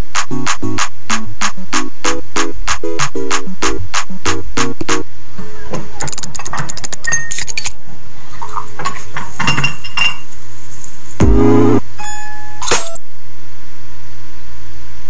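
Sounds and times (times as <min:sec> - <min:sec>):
electronic background music: 0:00.0 - 0:05.1, 0:11.2 - 0:11.9
chiming bell-like notes: 0:12.0 - 0:13.0.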